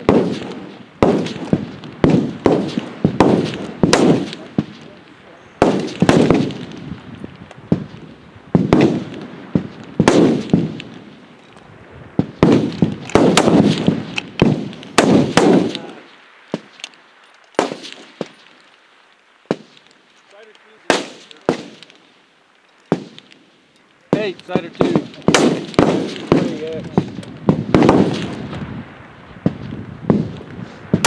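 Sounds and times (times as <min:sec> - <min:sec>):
rifle shots with echo: 0:00.0 - 0:06.9, 0:07.7 - 0:11.1, 0:12.2 - 0:16.9, 0:17.6 - 0:18.5, 0:20.8 - 0:22.0, 0:22.9 - 0:23.4, 0:24.1 - 0:28.7.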